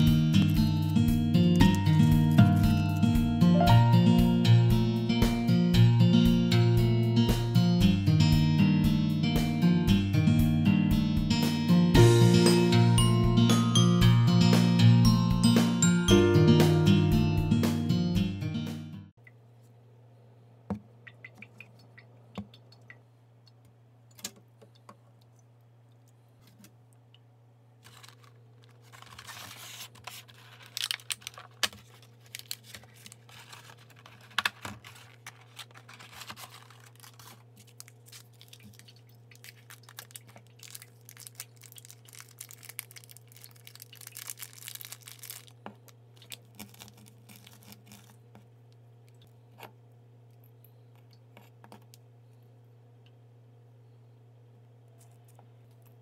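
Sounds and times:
egg shell cracking: 27.8s - 48.2s
plastic packaging clicks: 27.8s - 48.2s
plastic crinkling and tearing: 27.8s - 48.4s.

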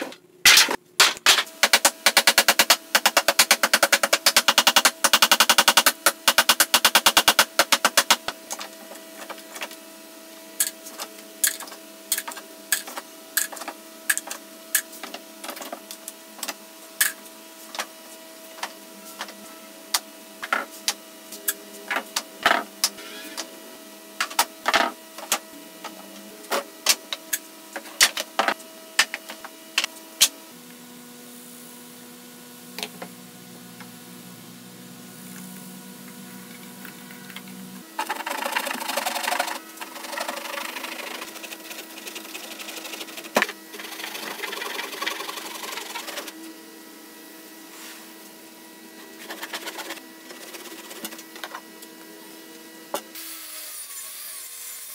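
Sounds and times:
steady mechanical hum: 0.0s - 54.9s.

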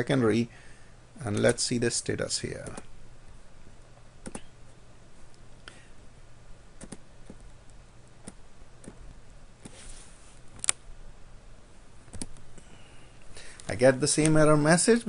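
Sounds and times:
computer mouse clicks: 4.2s - 4.5s, 6.8s - 7.5s, 8.2s - 9.8s, 12.1s - 12.4s.

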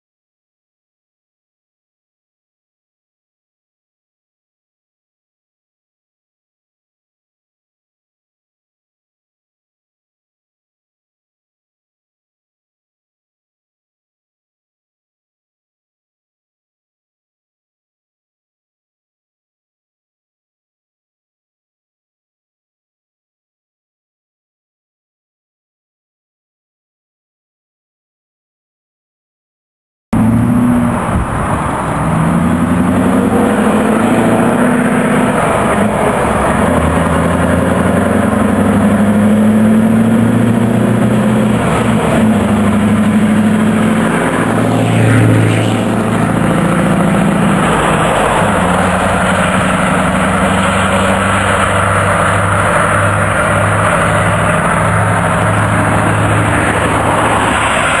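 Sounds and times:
diesel truck engine accelerating: 30.2s - 58.0s.

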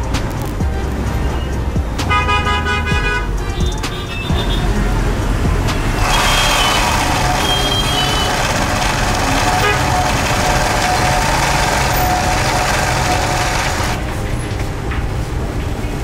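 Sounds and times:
sewing machine whirring: 6.0s - 14.0s.

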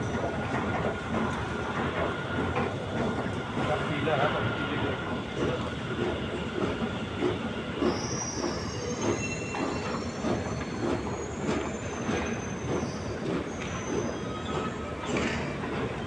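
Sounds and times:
metro train rumble and clatter: 0.0s - 16.0s
high-pitched wheel squeal: 7.9s - 15.4s.

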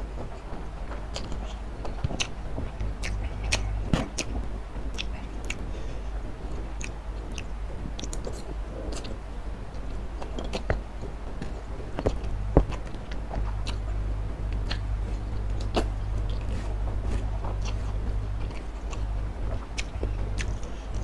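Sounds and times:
chewing noodles: 0.9s - 5.9s, 6.5s - 21.0s
wet mouth clicks: 14.5s - 14.9s, 19.8s - 20.8s.

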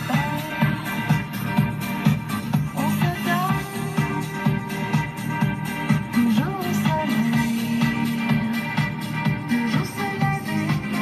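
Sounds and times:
music with steady beat: 0.0s - 11.0s.

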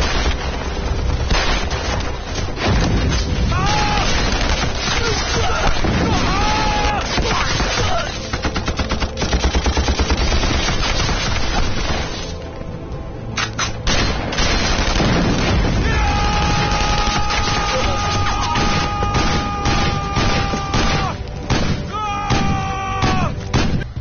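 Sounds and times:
booms: 0.0s - 7.6s
rifle shots: 4.0s - 12.4s, 13.4s - 15.8s, 18.6s - 22.6s, 23.5s - 24.0s
rapid machine-gun fire: 7.1s - 12.2s, 13.9s - 15.8s.

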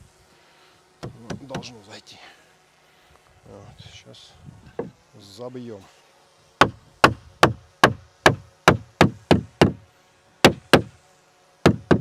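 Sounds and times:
hammering on wood: 1.0s - 1.8s, 6.6s - 9.8s, 10.4s - 11.0s, 11.6s - 12.0s.

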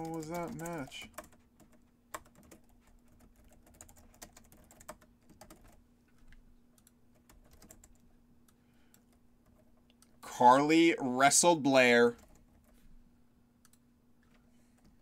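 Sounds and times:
typing on computer keyboard: 0.0s - 5.8s, 6.8s - 8.1s, 12.2s - 12.8s
faint steady hum: 0.0s - 15.0s.

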